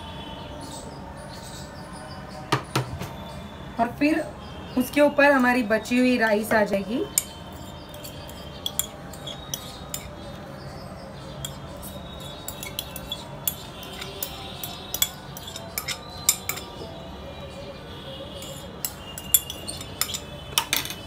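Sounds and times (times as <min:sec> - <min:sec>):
glass bowl and utensil clinks: 0:07.1 - 0:10.2, 0:11.4 - 0:16.9, 0:18.4 - 0:21.0.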